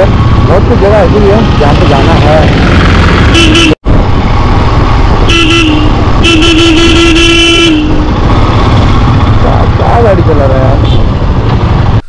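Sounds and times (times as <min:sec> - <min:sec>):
motorcycle engine rumble: 0:00.0 - 0:12.0
vehicle horn honking: 0:03.3 - 0:03.8, 0:05.3 - 0:08.2.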